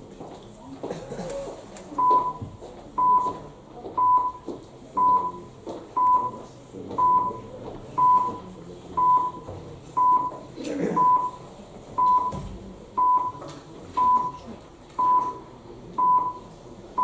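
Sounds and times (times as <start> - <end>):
countdown timer beeps: 4.0 - 5.4, 7.0 - 7.4, 15.0 - 15.4.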